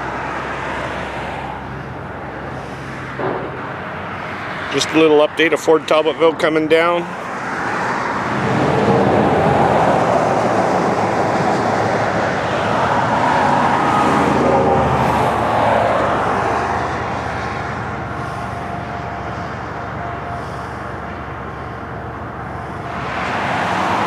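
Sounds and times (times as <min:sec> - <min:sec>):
vehicle passing close by: 0:07.0 - 0:24.0.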